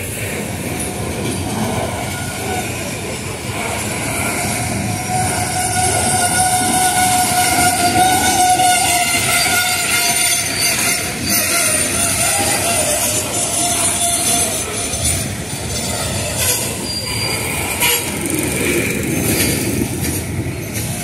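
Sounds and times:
train wheels clattering on rails: 0.0s - 21.0s.

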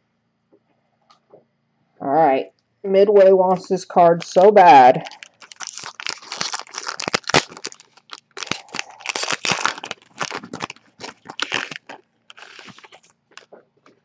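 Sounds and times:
foil wrapper tearing and crinkling: 4.2s - 13.5s.

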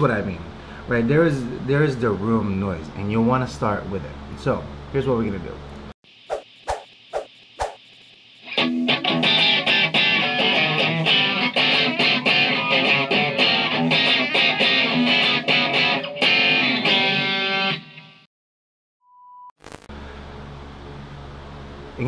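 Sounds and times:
electric guitar fast riff: 8.5s - 17.9s.

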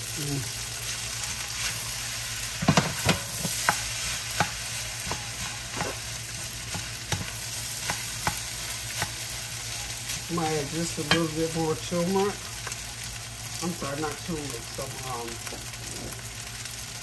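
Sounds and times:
fried rice sizzling in a pan: 0.0s - 17.0s
spatula tapping and scraping pan: 2.6s - 6.0s.

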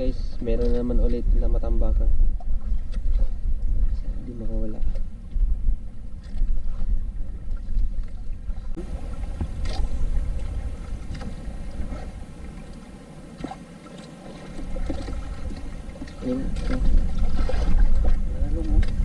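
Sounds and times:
wind rumble on microphone: 0.0s - 13.6s, 14.2s - 19.0s
water sloshing against boat hull: 0.0s - 19.0s.

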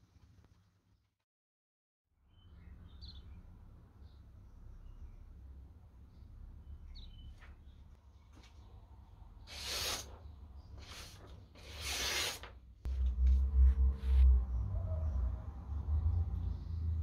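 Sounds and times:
knife slicing paper: 9.5s - 10.2s, 10.8s - 12.6s
loud low rumble: 12.9s - 17.0s.

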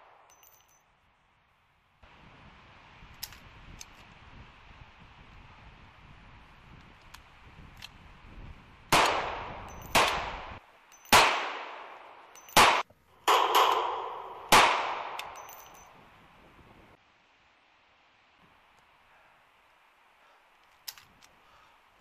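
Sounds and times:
pistol gunshots with echo: 8.9s - 15.4s.

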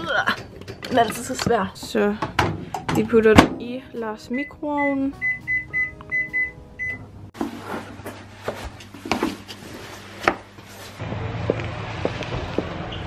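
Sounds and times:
microwave keypad beeping: 4.4s - 7.1s
boot heels on stone floor: 8.4s - 12.8s
outdoor rumble: 10.6s - 13.0s.

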